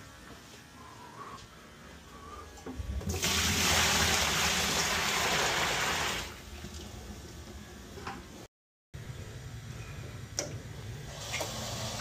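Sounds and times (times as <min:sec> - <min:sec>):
water pouring into plastic sink: 0:03.0 - 0:06.9.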